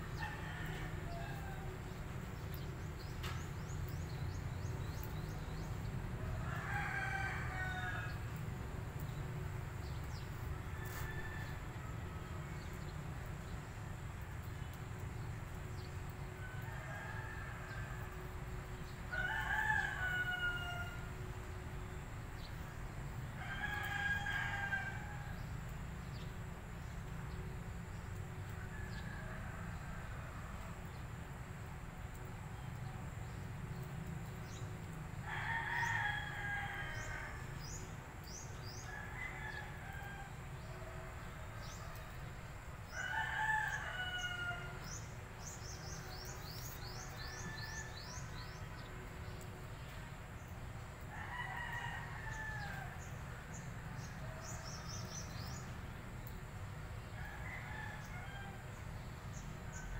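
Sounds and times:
roosters crowing: 0:00.0 - 0:02.0, 0:06.2 - 0:08.5, 0:09.8 - 0:12.6, 0:19.1 - 0:21.3, 0:23.4 - 0:25.4, 0:35.2 - 0:42.2, 0:42.8 - 0:48.9, 0:51.1 - 0:55.6, 0:57.1 - 0:59.9.

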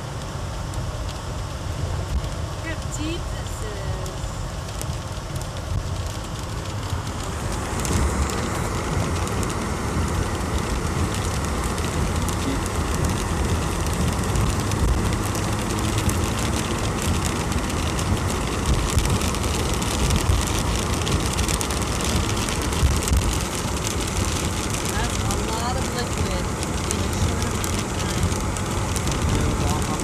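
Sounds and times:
car road noise: 0:00.0 - 0:30.0
hail ticking on windshield: 0:00.2 - 0:30.0
tyres through slush: 0:06.3 - 0:30.0.

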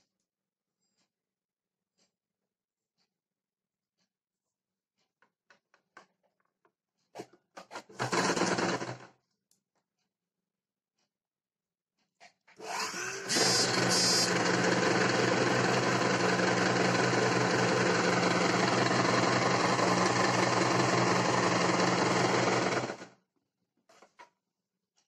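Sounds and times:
electric sewing machine running: 0:07.9 - 0:09.1, 0:12.6 - 0:23.1.

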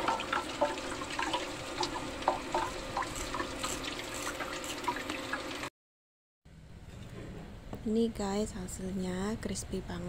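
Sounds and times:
oil sizzling and popping: 0:00.0 - 0:05.7.

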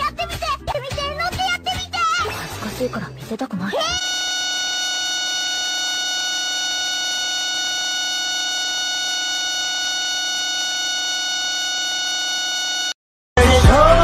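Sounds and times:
electronic buzz: 0:04.0 - 0:13.0.

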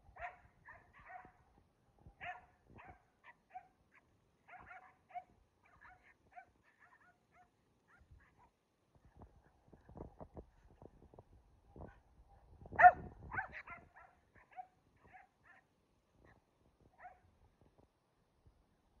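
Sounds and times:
dog barking: 0:00.2 - 0:01.4, 0:02.2 - 0:08.5, 0:12.8 - 0:15.7, 0:17.0 - 0:17.2.

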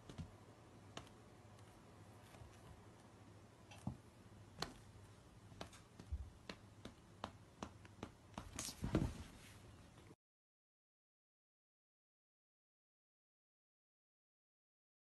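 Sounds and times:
cats scuffling: 0:08.4 - 0:09.6.

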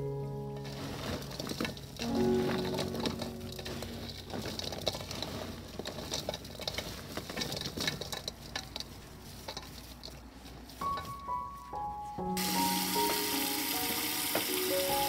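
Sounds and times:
wet rustle of fish mixing: 0:00.6 - 0:11.8, 0:12.4 - 0:15.0.

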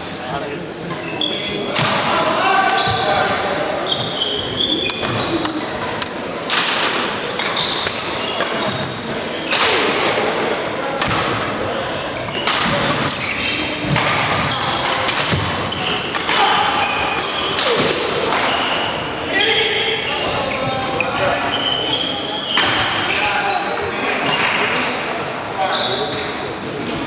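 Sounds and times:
shoes squeaking on court floor: 0:00.8 - 0:01.8, 0:02.4 - 0:06.5, 0:07.3 - 0:09.6, 0:10.8 - 0:24.7, 0:25.6 - 0:26.6
racquet hitting shuttlecock: 0:13.8 - 0:16.4.

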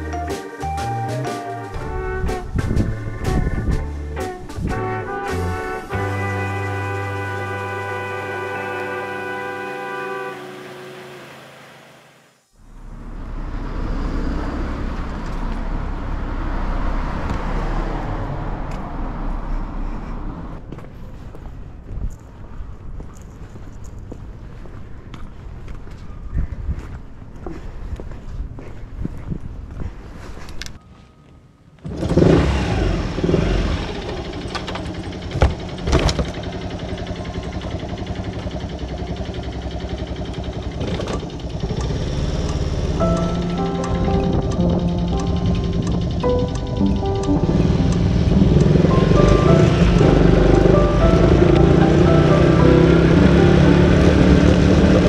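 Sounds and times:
road traffic rumble: 0:00.0 - 0:55.0
motorcycle engine idling: 0:32.8 - 0:55.0
sharp engine knocks: 0:34.0 - 0:52.0.

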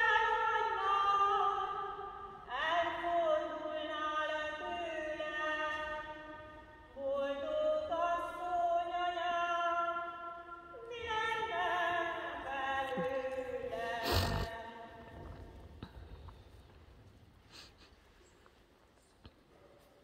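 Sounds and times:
singing a hymn: 0:00.0 - 0:15.5.

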